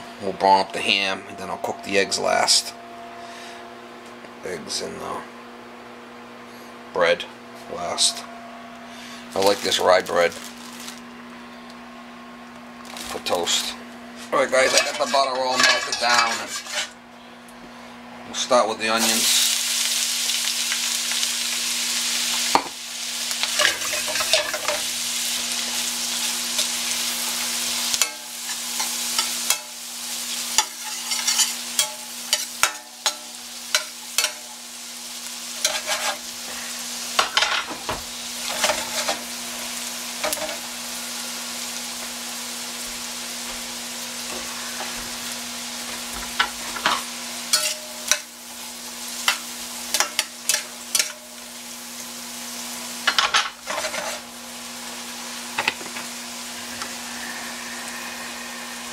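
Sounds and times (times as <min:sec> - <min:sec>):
onions sizzling in butter: 0:12.8 - 0:17.0, 0:19.0 - 0:58.9
fork scraping a pan: 0:14.5 - 0:17.0, 0:30.6 - 0:34.5, 0:35.6 - 0:36.2, 0:38.4 - 0:39.2, 0:46.8 - 0:48.3, 0:53.7 - 0:54.3.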